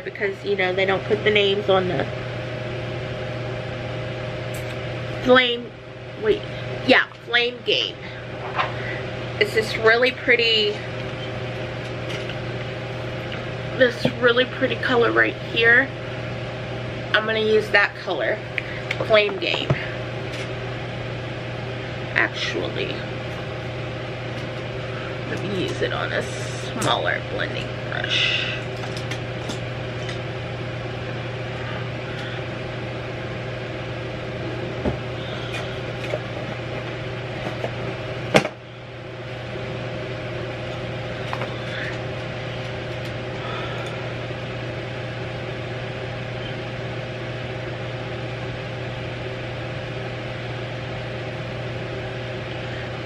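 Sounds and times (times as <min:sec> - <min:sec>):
low electrical hum: 0:00.0 - 0:53.0.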